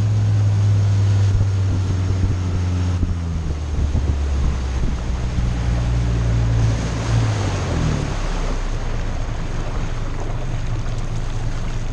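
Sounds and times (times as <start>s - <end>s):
wind on microphone: 0.0s - 9.2s
boat engine droning: 0.0s - 11.9s
water rushing and spraying: 0.0s - 11.9s.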